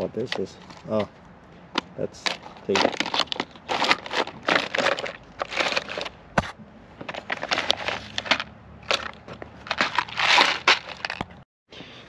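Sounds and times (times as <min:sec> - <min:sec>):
rustling of handled parts: 0:00.0 - 0:11.4
clattering of containers: 0:02.2 - 0:06.2, 0:07.0 - 0:11.4.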